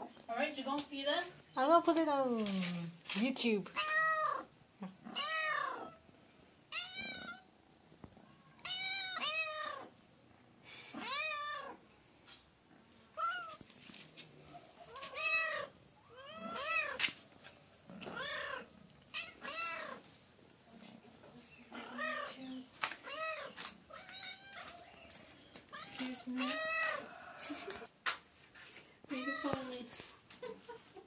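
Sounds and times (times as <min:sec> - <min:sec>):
cats meowing: 0:03.8 - 0:06.0, 0:06.7 - 0:07.5, 0:08.5 - 0:09.9, 0:10.9 - 0:11.8, 0:13.1 - 0:13.6, 0:14.8 - 0:17.2, 0:17.9 - 0:20.1, 0:21.7 - 0:27.9, 0:29.1 - 0:29.8.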